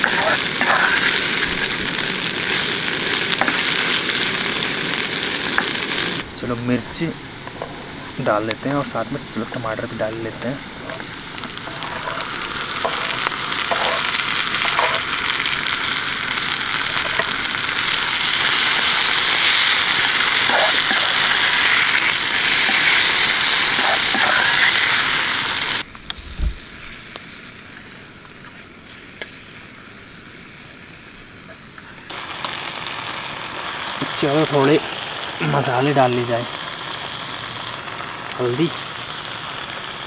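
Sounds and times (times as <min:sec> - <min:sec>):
vegetables sizzling in a frying pan: 0:00.0 - 0:25.9, 0:26.6 - 0:40.0
metal spatula scraping: 0:11.6 - 0:15.0
low thump: 0:26.2 - 0:26.6.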